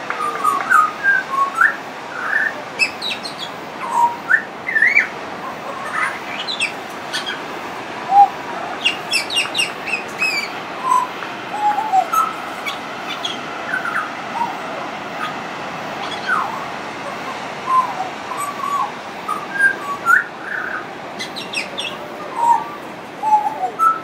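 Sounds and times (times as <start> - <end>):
bird whistling clear notes: 8.1 - 14.5.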